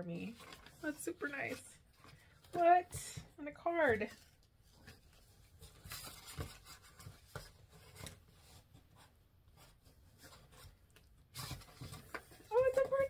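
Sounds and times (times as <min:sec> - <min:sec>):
paper and cardboard rustling: 0:00.0 - 0:13.0.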